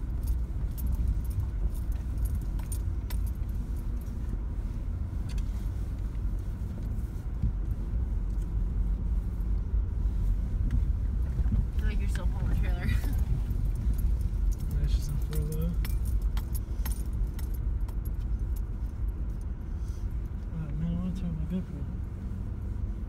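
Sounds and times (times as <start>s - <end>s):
metallic jingling and rattles: 0.0s - 4.3s, 12.5s - 19.5s
vehicle rumbling on dirt trail: 0.0s - 23.0s.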